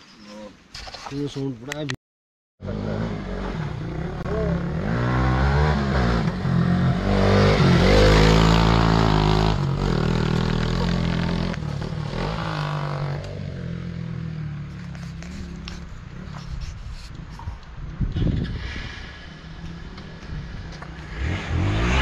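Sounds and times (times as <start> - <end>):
motorcycle engine revving: 2.6 - 16.5, 19.3 - 22.0.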